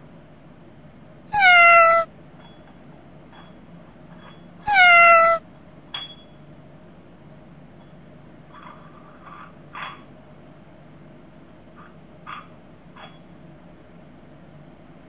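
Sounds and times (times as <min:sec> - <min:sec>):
cat meowing: 0:01.3 - 0:02.1, 0:04.6 - 0:05.4.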